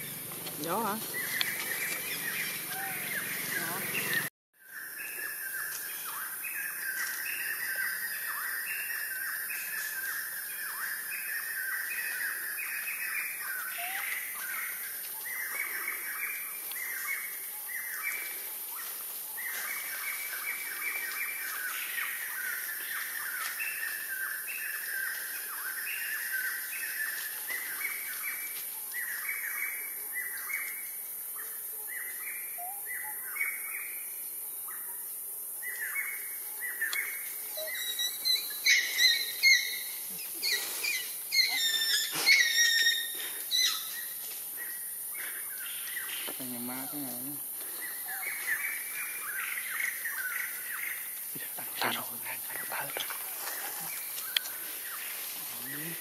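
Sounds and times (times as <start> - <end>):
birds chirping: 0.0 - 56.0
steady high hiss: 35.1 - 56.0.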